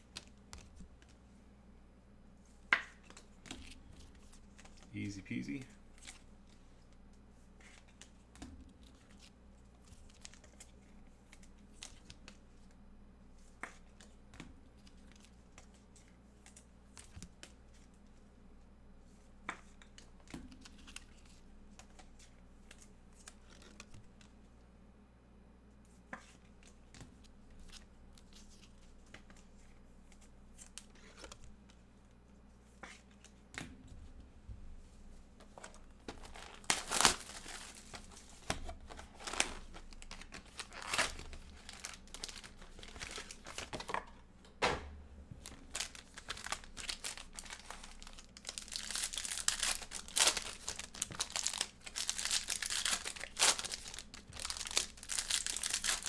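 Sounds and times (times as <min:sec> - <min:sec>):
foil packs crinkling and tearing: 0:36.1 - 0:43.9, 0:45.5 - 0:56.0.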